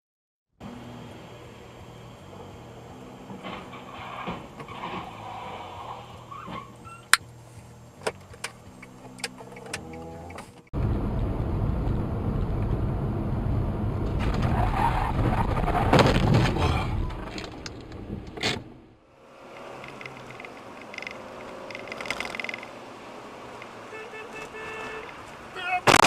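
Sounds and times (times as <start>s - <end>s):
car road and engine noise: 0.6s - 26.0s
car crash with scraping: 3.3s - 6.8s, 14.0s - 18.8s.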